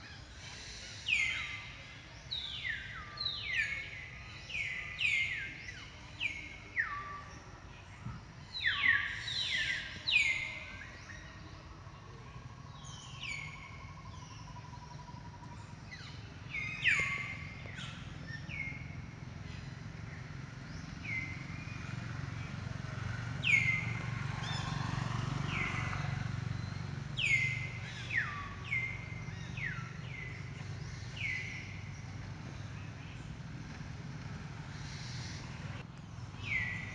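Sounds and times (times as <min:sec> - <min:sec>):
low steady rumble: 0:01.1 - 0:36.9.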